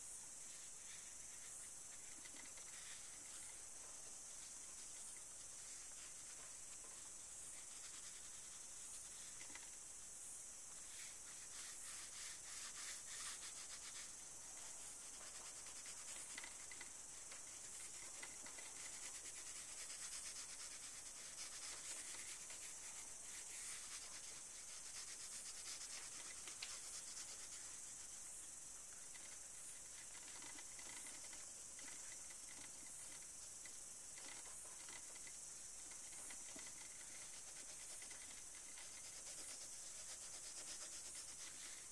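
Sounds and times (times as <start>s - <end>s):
steady hiss: 0.0s - 41.9s
pastel scratching on paper: 0.5s - 3.6s, 4.3s - 9.8s, 10.7s - 28.2s, 35.8s - 41.9s.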